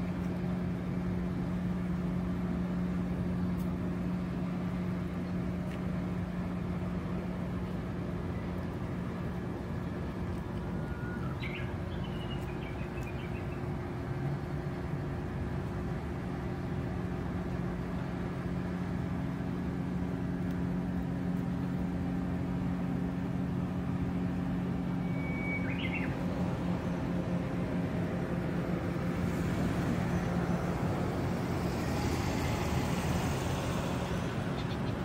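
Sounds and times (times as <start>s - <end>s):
low machine hum: 0.0s - 35.0s
bird chirping: 10.9s - 13.6s, 25.0s - 26.2s.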